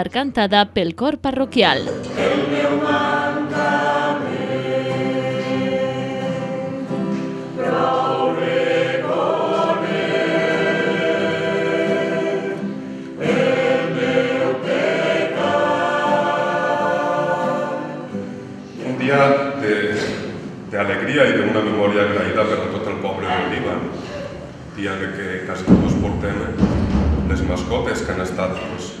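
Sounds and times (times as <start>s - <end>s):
choir singing a hymn: 1.9s - 25.1s.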